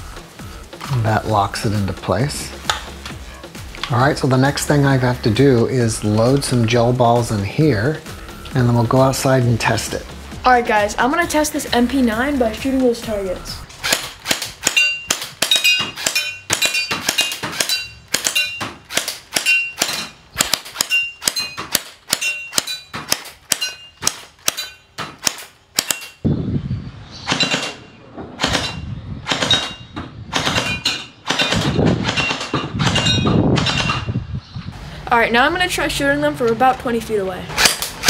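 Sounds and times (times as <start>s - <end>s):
pellets ringing on metal targets: 14.7s - 18.7s, 19.4s - 20.2s, 20.8s - 25.0s.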